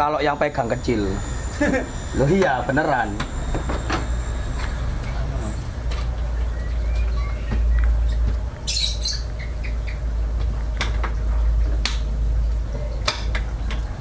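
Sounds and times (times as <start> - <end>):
steady low rumble: 0.0 - 12.7.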